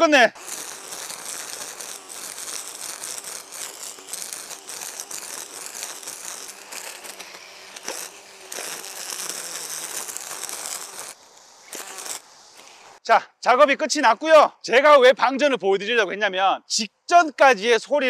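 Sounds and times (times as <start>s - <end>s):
brush cutter cutting grass: 0.0s - 13.0s.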